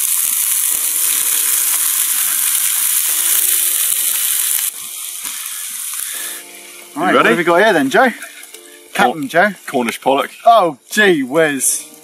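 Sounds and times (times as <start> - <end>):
fish sizzling in hot oil: 0.0 - 10.9.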